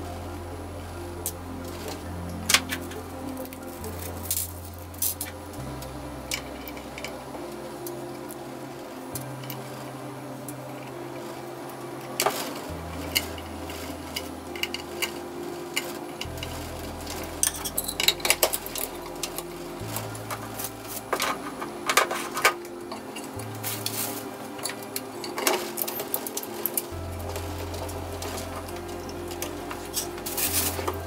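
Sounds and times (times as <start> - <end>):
background music with slow bass: 0.0 - 31.0
plastic and metal parts clattering: 20.3 - 28.8.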